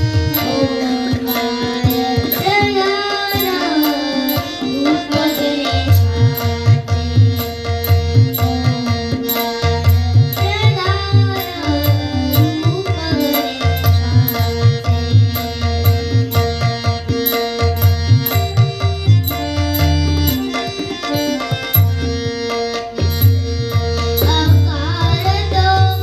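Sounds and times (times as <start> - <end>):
harmonium and tanpura drone: 0.0 - 26.0
tabla rhythm: 0.0 - 26.0
woman singing: 0.3 - 6.6, 8.3 - 15.1, 24.2 - 26.0.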